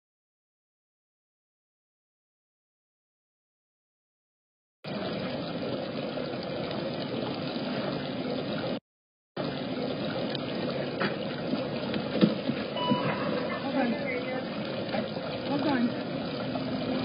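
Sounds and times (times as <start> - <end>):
waterfall splashing into pond: 9.4 - 17.0.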